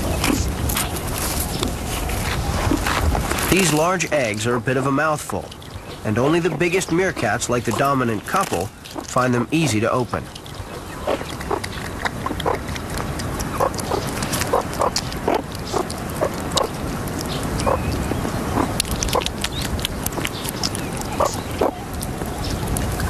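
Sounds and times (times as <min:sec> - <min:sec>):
animal chewing and licking: 0:00.0 - 0:23.0
eggshell cracking clicks: 0:03.8 - 0:22.1.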